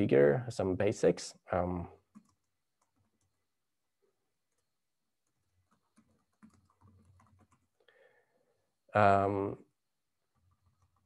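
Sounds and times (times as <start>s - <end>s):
faint computer keyboard typing: 2.0s - 3.5s, 4.4s - 7.8s, 10.3s - 11.0s.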